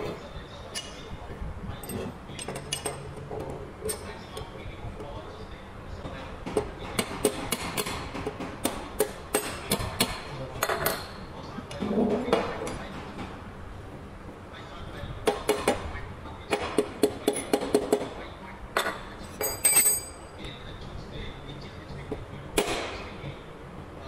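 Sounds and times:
metal tools tapping metal: 0:01.8 - 0:03.1, 0:18.8 - 0:20.4.

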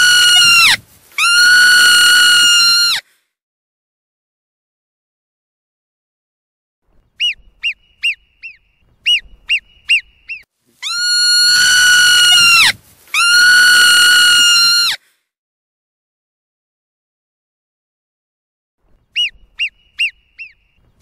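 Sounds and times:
marmot whistling: 0:07.2 - 0:13.7, 0:19.1 - 0:20.8.

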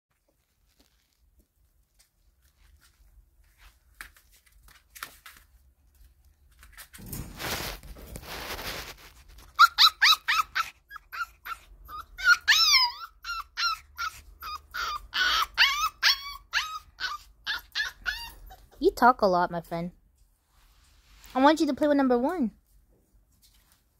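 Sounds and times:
puppy yipping and whining: 0:09.4 - 0:18.8.

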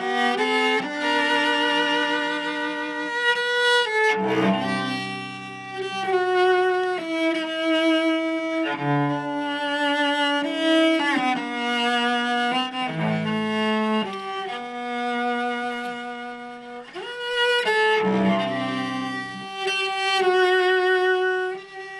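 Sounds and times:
bowed cello melody: 0:00.0 - 0:21.9.

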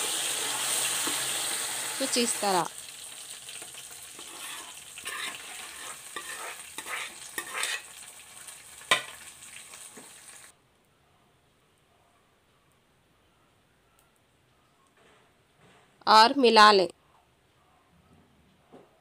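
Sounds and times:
hot oil sizzling: 0:00.0 - 0:10.5
stirring scrapes and knocks: 0:03.6 - 0:08.0.

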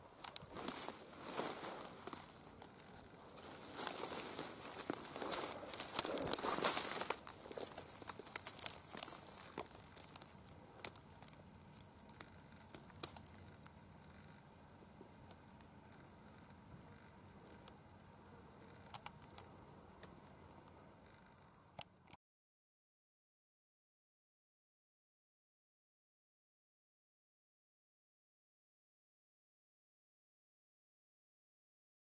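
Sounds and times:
dry leaves rustling and crackling: 0:00.2 - 0:14.2.

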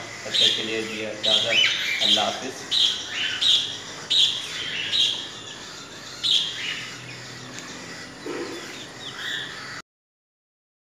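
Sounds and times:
chicks peeping: 0:00.0 - 0:09.8.

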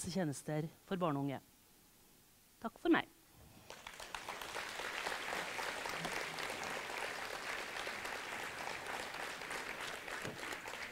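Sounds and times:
large audience applauding: 0:03.6 - 0:10.9.

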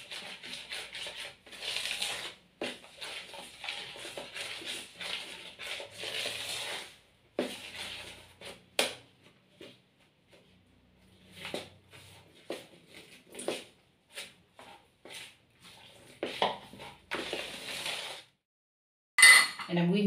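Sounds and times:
flour rubbing and scraping in bowl: 0:00.0 - 0:08.8, 0:11.0 - 0:18.4.

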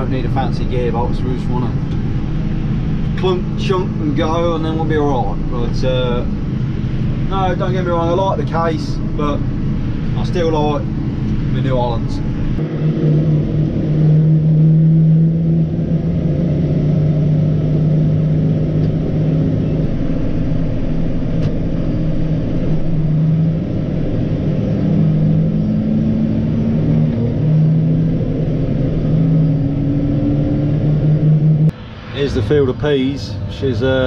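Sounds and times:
tractor diesel engine running: 0:00.0 - 0:34.0.

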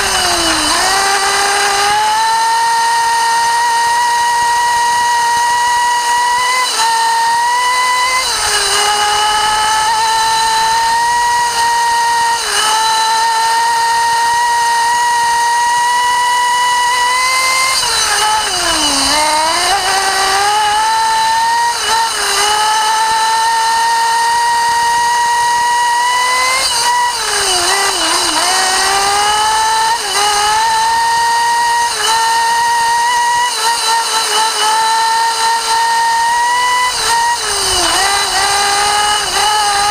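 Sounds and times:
small glow engine screaming: 0:00.0 - 0:05.6, 0:15.9 - 0:23.9.

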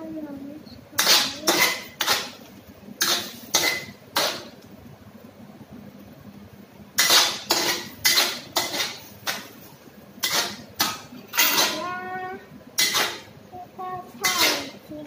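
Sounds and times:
metal spatula scraping a wok: 0:03.0 - 0:04.5, 0:07.0 - 0:09.5, 0:10.2 - 0:11.8, 0:12.8 - 0:13.3, 0:14.2 - 0:14.8.

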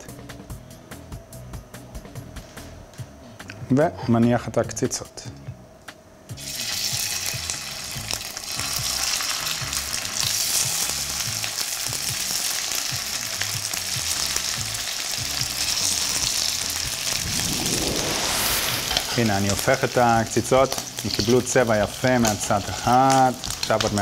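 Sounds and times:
patties sizzling in hot oil: 0:06.4 - 0:24.0.

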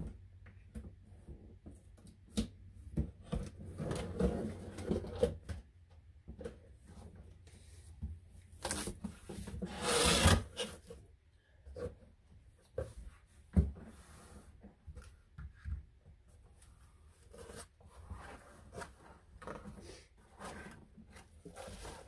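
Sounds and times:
scraping on cardboard: 0:08.7 - 0:10.9.

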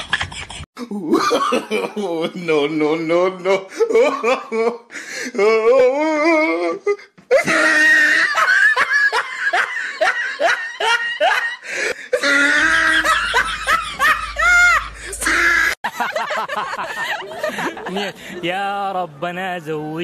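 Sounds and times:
hearty laughter: 0:07.3 - 0:18.5.

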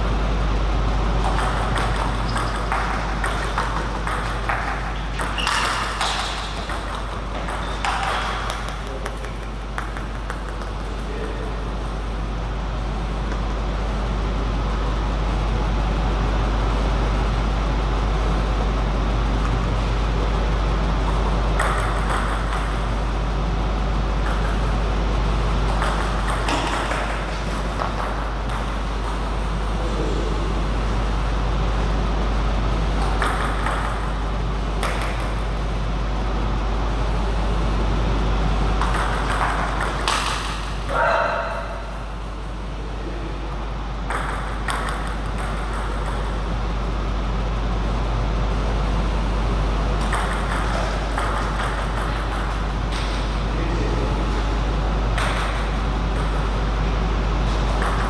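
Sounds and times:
steady low hum: 0:00.0 - 0:58.0
table tennis ball clicking: 0:01.2 - 0:11.4, 0:33.0 - 0:34.1, 0:38.8 - 0:40.6.

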